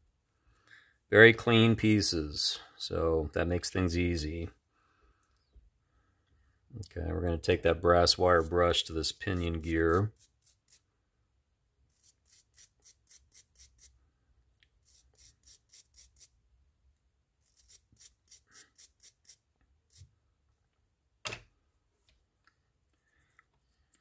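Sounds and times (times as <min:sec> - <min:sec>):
wire brush scrubbing metal gear: 0:08.3 - 0:10.8, 0:11.9 - 0:13.9, 0:17.4 - 0:19.4.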